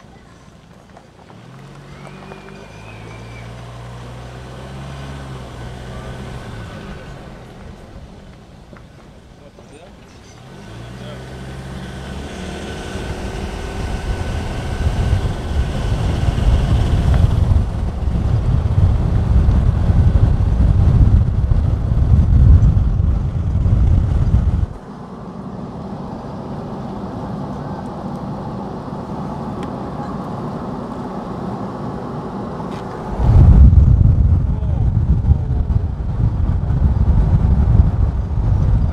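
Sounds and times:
wind and road noise rumble: 0.0 - 38.9.

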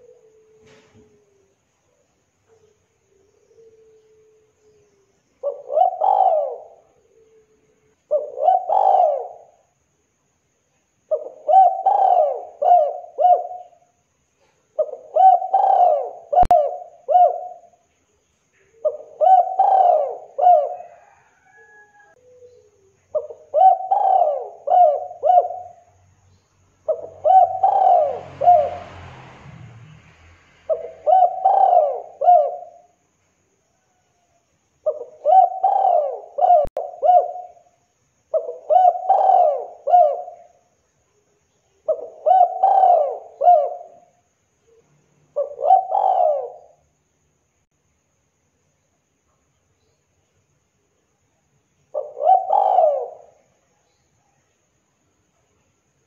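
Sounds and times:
dove cooing: 0.0 - 9.6, 11.1 - 17.9, 18.6 - 26.0, 26.9 - 28.9, 30.7 - 33.0, 34.8 - 37.7, 38.3 - 40.6, 41.8 - 46.8, 51.9 - 53.7.

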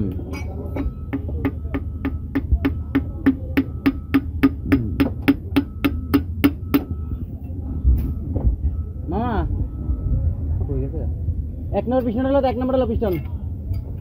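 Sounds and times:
hammer tapping on metal: 0.0 - 7.0.

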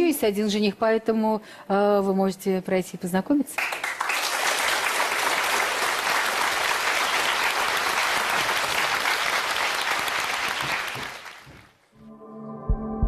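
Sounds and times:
audience applauding: 3.6 - 11.8.

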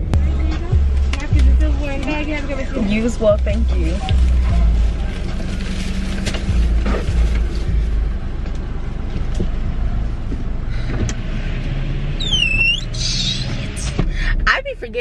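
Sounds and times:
car engine idling: 0.0 - 15.0
short falling squeal: 12.2 - 13.9.

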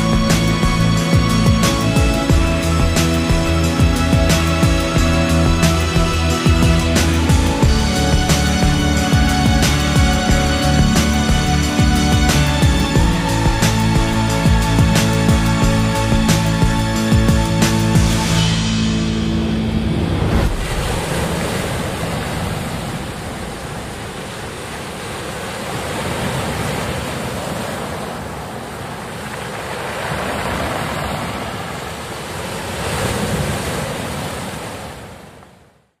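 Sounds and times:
music: 0.0 - 21.3
sea waves washing in: 0.1 - 35.6.

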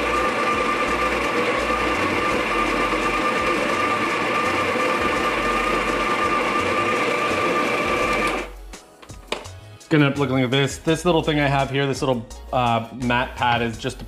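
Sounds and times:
electric coffee grinder running: 0.0 - 8.5.

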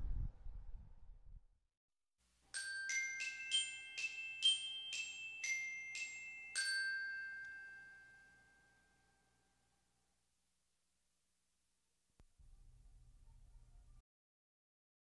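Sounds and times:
glockenspiel-like melody: 2.5 - 9.9.

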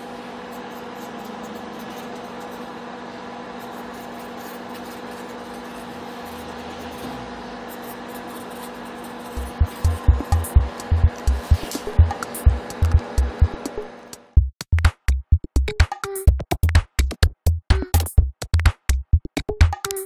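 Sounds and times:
appliance hum: 0.0 - 14.4
music with heavy low beat: 9.4 - 20.0.

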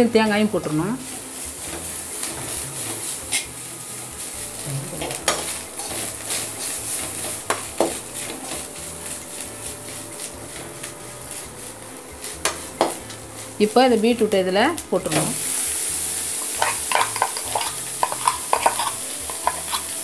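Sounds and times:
food sizzling in oil: 0.0 - 20.0
spoon scraping metal pan: 4.9 - 14.3, 16.3 - 20.0.

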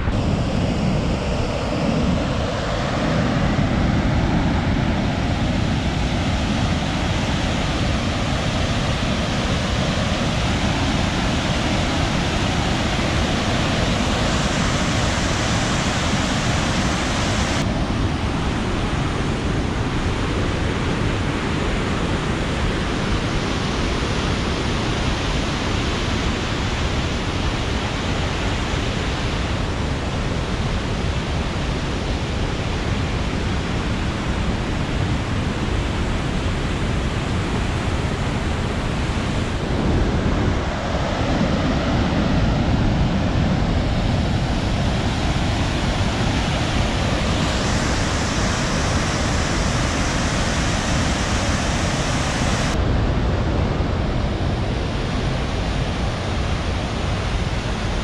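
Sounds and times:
waterfall rushing: 42.4 - 52.8.

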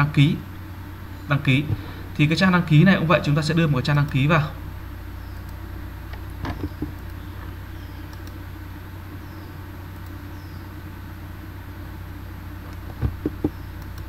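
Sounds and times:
low background hum: 0.0 - 14.0
short clicks: 8.1 - 8.4.

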